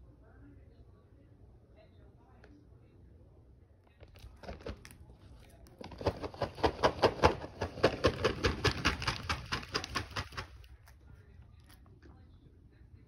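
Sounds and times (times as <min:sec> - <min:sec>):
bag of treats shaken: 0:05.8 - 0:10.7.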